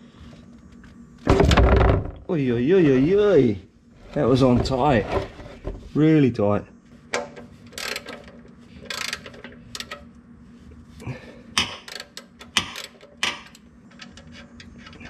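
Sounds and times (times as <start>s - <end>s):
hand ratchet clicking: 7.7s - 10.0s, 11.6s - 14.2s.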